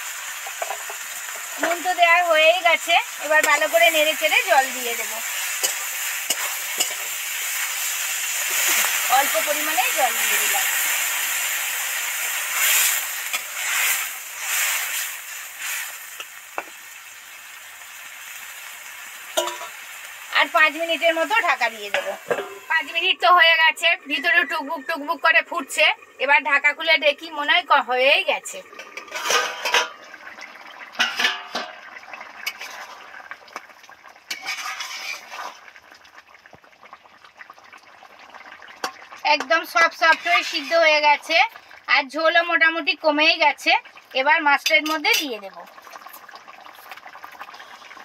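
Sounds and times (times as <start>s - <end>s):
curry bubbling in a pan: 0.0s - 48.0s
water sizzling in hot oil: 0.0s - 48.0s
spatula tapping a pan: 5.6s - 7.1s, 19.4s - 19.7s
metal lid clattering: 19.4s - 19.8s, 21.9s - 22.7s, 28.8s - 30.0s, 31.0s - 31.8s.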